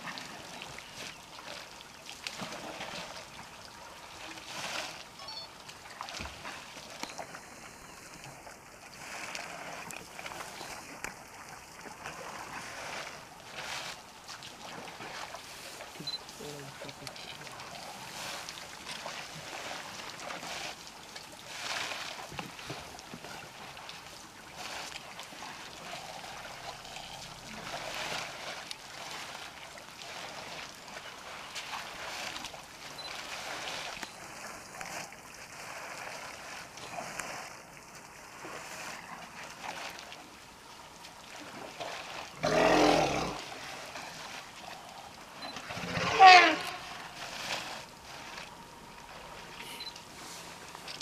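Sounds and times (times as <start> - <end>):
water trickling and splashing: 0.0 - 51.0.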